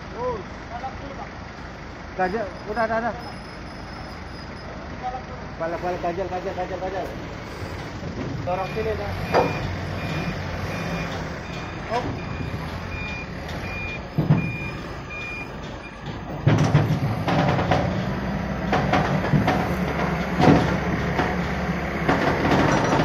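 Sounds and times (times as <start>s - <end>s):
forklift engine running: 0.0s - 23.0s
reversing alarm beeping: 2.5s - 4.7s, 8.6s - 16.4s
metallic knocks and clanks: 7.8s - 23.0s.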